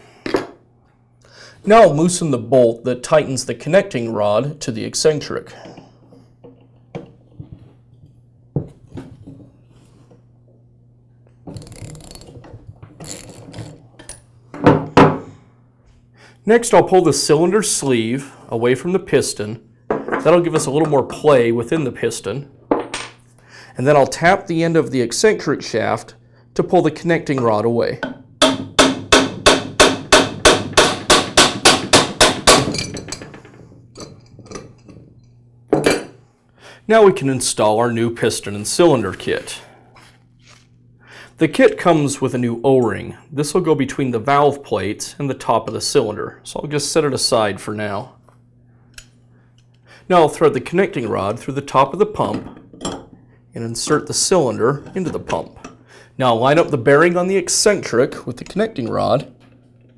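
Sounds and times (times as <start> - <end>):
hammer tapping on metal shaft: 28.0 - 32.6.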